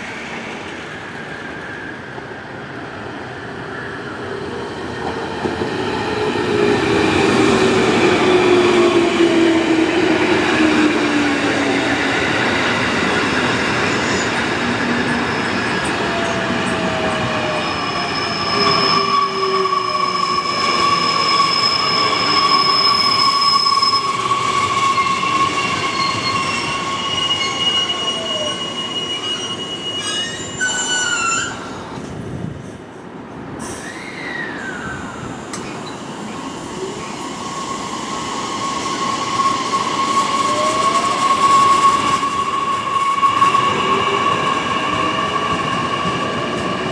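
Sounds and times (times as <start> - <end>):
train wheels rumbling on rails: 0.0 - 46.9
high squealing tones: 17.5 - 31.8, 36.7 - 46.6.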